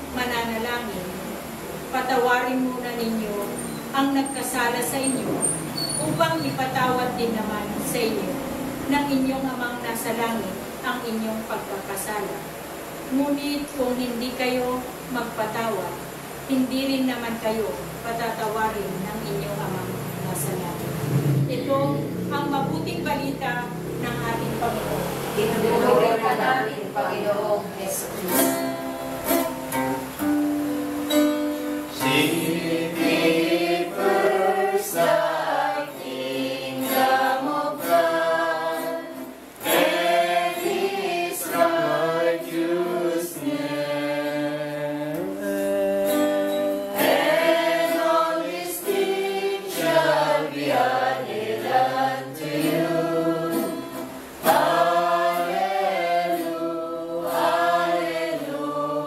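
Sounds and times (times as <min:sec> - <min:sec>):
group singing worship song: 0:22.6 - 0:28.4, 0:31.9 - 0:59.0
strummed string instrument: 0:28.3 - 0:42.5.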